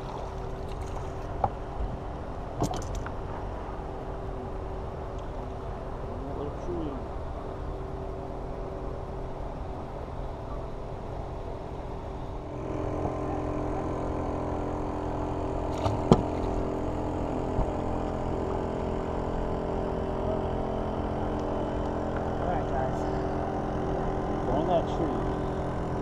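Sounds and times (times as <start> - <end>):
boat motor humming: 0.0 - 26.0.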